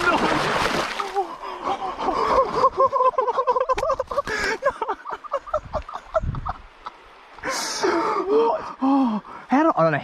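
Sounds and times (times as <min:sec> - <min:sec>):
person laughing excitedly: 0:01.0 - 0:06.6.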